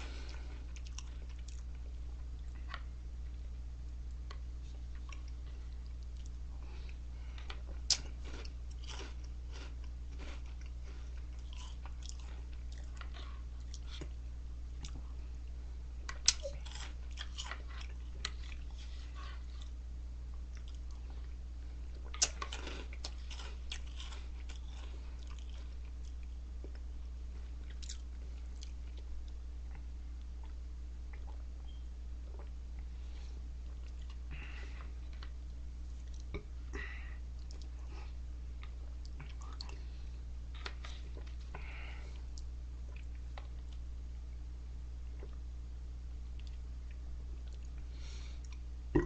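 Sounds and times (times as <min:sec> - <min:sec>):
crunchy chewing of cereal: 0:00.0 - 0:02.9, 0:04.3 - 0:14.2, 0:14.8 - 0:30.6
steady low hum: 0:00.0 - 0:49.0.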